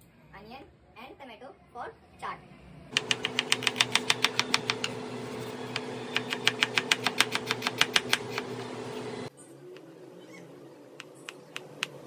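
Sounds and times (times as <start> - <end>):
knife chopping on cutting board: 3.0 - 5.1, 5.7 - 8.8.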